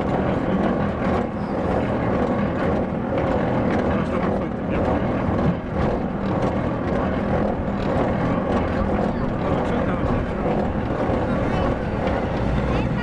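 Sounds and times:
clicks and clatter: 0:00.0 - 0:12.6
steel wheels rumbling on rails: 0:00.0 - 0:13.0.

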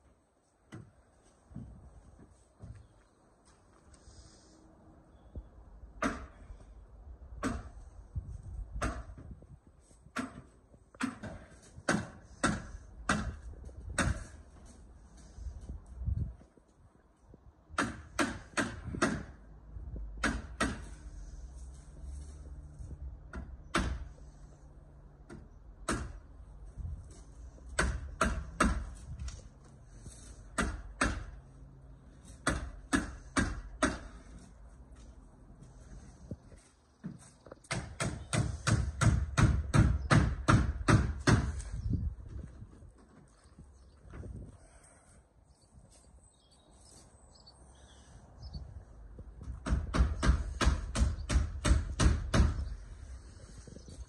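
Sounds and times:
faint bird chirps: 0:05.0 - 0:05.6
hammer striking nails into timber: 0:06.0 - 0:06.4, 0:07.4 - 0:07.8, 0:08.8 - 0:09.2, 0:10.1 - 0:13.4, 0:14.0 - 0:14.4, 0:17.8 - 0:19.4, 0:20.2 - 0:20.9, 0:23.3 - 0:24.1, 0:25.3 - 0:26.2, 0:27.7 - 0:29.0, 0:30.5 - 0:31.4, 0:32.4 - 0:34.2, 0:37.7 - 0:41.6, 0:49.4 - 0:52.7.

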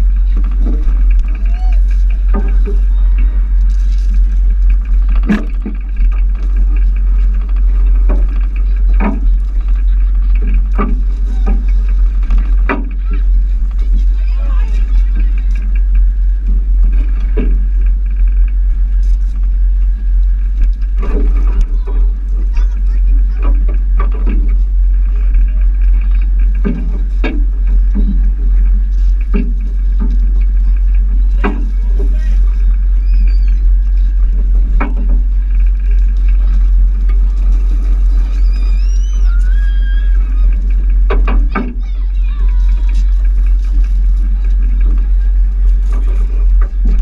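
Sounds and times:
boat engine rumble: 0:00.0 - 0:47.0
faint voice: 0:41.5 - 0:43.3
child shouting: 0:41.6 - 0:43.0.

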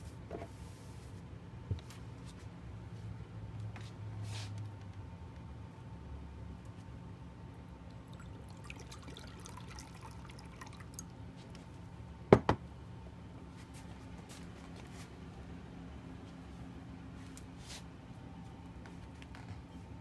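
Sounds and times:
faint drips: 0:07.7 - 0:11.6
water trickling into glass bowl: 0:07.8 - 0:11.1.

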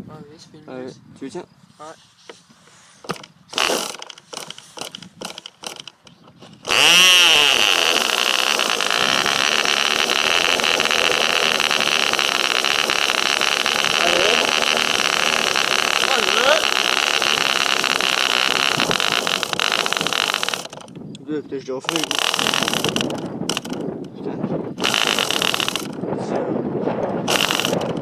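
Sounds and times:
model engine high-pitched buzz: 0:03.0 - 0:21.0, 0:21.8 - 0:23.9, 0:24.8 - 0:26.0, 0:27.3 - 0:28.0
short sharp clicks: 0:21.8 - 0:23.9.

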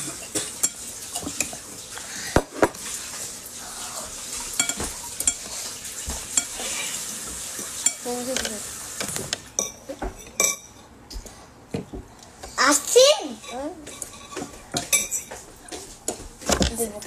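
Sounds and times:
spoons clinking on bowls: 0:00.0 - 0:01.6, 0:04.6 - 0:05.6, 0:07.8 - 0:08.6, 0:09.6 - 0:10.9, 0:13.3 - 0:15.4.

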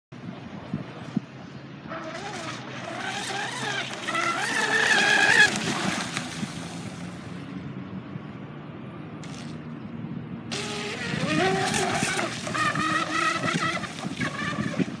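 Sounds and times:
electric motor whine: 0:10.5 - 0:15.0.

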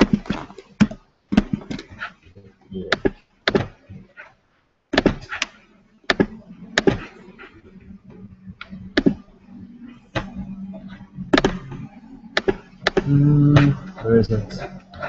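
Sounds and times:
faint low hum: 0:00.0 - 0:15.0
sharp knocks and clicks: 0:04.9 - 0:07.2, 0:08.6 - 0:09.2, 0:11.3 - 0:14.0.

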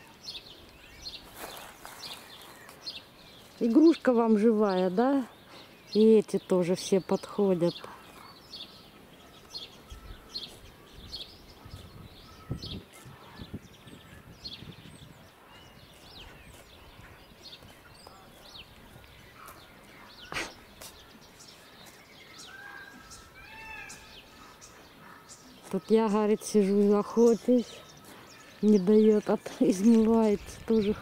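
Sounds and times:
small songbirds chirping: 0:00.0 - 0:31.0.

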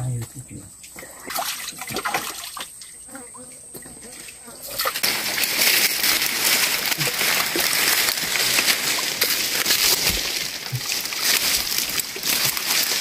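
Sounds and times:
water sloshing and splashing: 0:00.8 - 0:13.0
leaves and twigs rustling: 0:04.0 - 0:13.0.

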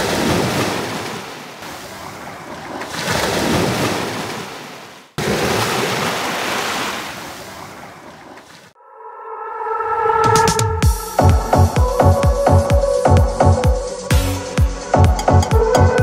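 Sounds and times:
waves washing on shore: 0:00.0 - 0:08.8.

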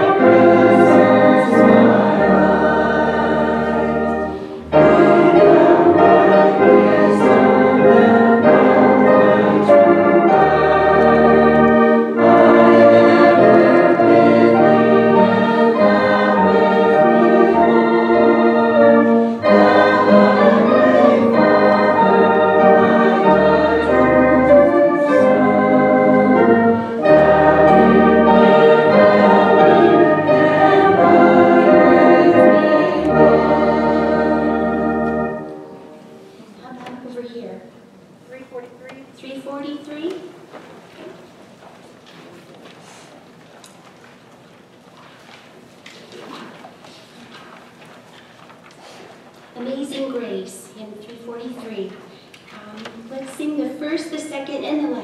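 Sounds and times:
congregation singing a hymn: 0:00.0 - 0:36.6
church organ: 0:00.0 - 0:37.0.

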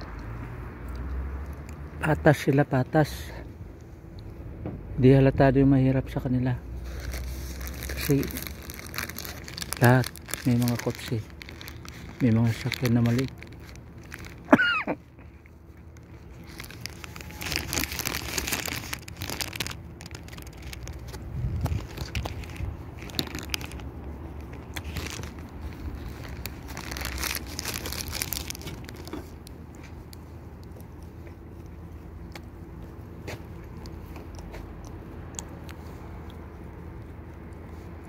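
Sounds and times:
biting into croissant: 0:06.8 - 0:14.5, 0:15.2 - 0:38.0
paper wrapper crinkling: 0:06.8 - 0:14.6, 0:15.3 - 0:34.6.

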